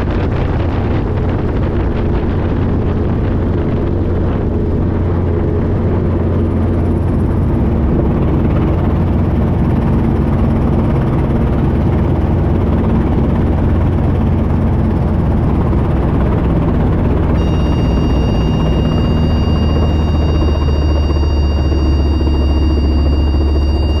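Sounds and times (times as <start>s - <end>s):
helicopter rotor and engine hum: 0.0s - 24.0s
high electronic warning tone: 17.3s - 24.0s.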